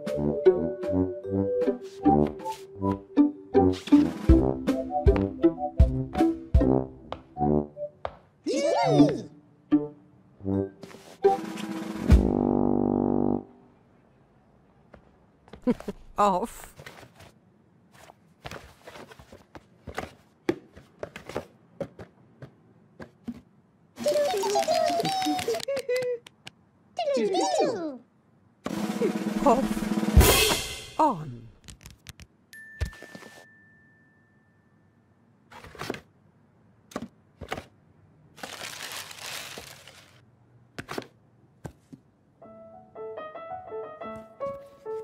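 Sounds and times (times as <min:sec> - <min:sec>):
cardboard box and slippers handled: 0:38.4 - 0:40.2
tissue paper crinkling: 0:38.4 - 0:40.2.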